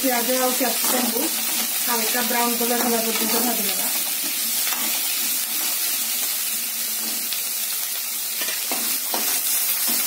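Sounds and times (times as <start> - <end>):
vegetables sizzling in hot oil: 0.0 - 10.0
spatula scraping a pan: 8.4 - 10.0.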